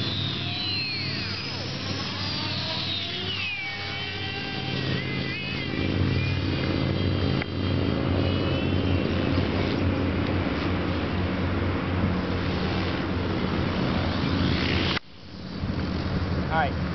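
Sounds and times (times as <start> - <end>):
model helicopter motor whine: 0.0 - 16.9
steady low hum: 0.0 - 16.9.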